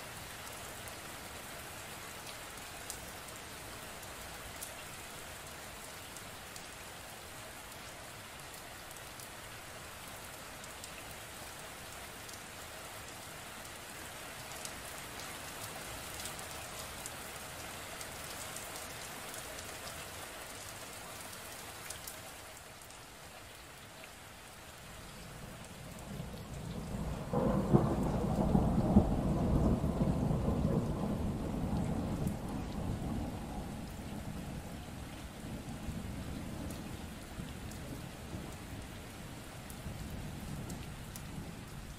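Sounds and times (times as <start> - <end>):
steady rain falling: 0.0 - 41.9
thunder rumbling: 25.8 - 38.6.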